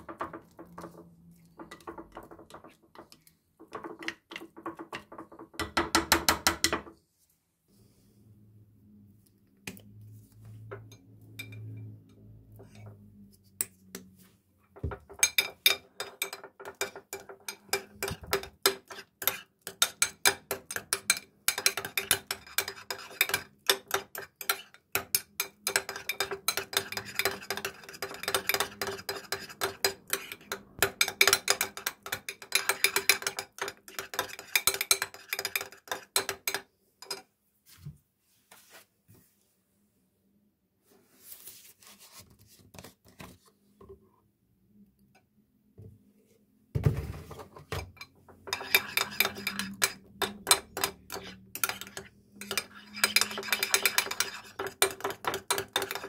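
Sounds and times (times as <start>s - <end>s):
metal spoon scraping glass dish: 15.2s - 37.2s, 48.5s - 56.0s.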